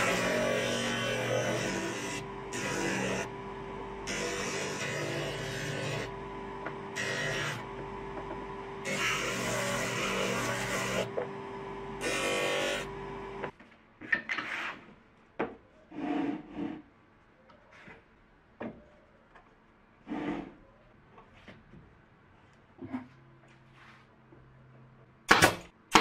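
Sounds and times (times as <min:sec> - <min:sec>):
disc sander humming: 0:00.0 - 0:13.5.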